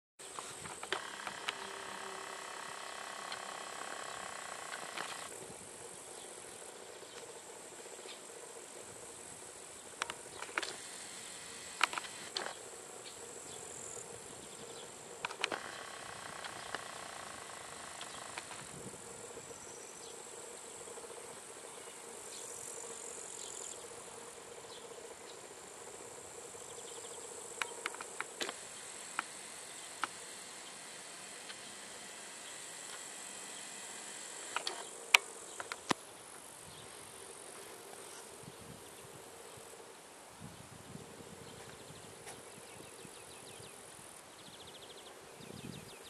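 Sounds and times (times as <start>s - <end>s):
insects chirring: 0.2s - 46.0s
sharp clicks: 0.7s - 5.3s, 11.8s - 12.6s, 15.2s - 18.7s, 27.6s - 30.2s, 34.4s - 36.0s.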